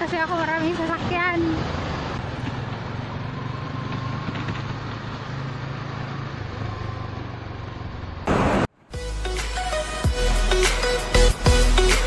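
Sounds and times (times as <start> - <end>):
traffic noise: 0.0 - 8.9
wind: 0.0 - 12.0.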